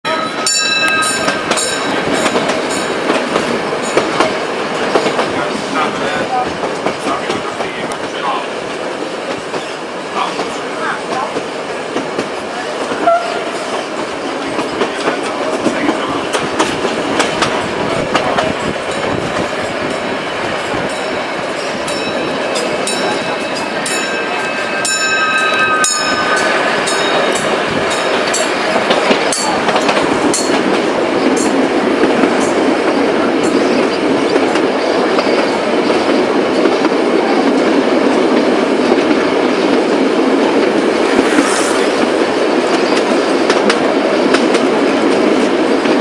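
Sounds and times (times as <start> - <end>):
train rumbling along track: 0.0 - 46.0
high ringing tone: 0.1 - 3.0, 20.9 - 28.8.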